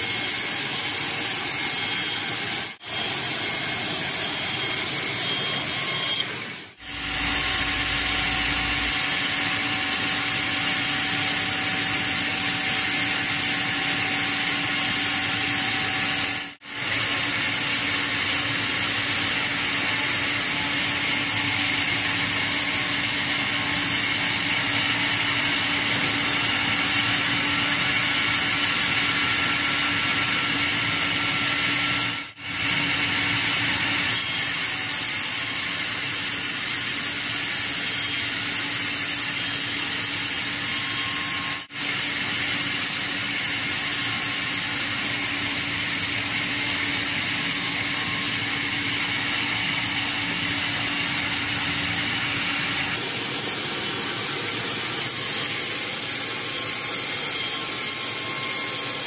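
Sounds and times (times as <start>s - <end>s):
band saw cutting log: 0.0s - 59.0s.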